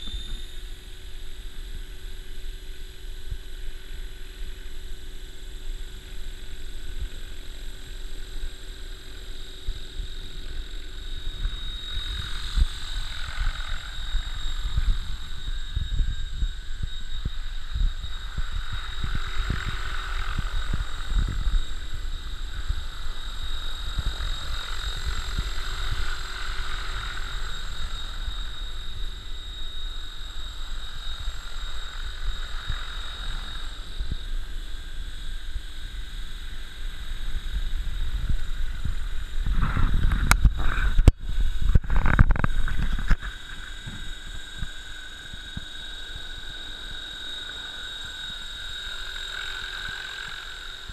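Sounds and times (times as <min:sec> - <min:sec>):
model helicopter rotor whine: 0:00.0 - 0:50.9
rotor wash rumble on microphone: 0:37.4 - 0:45.6.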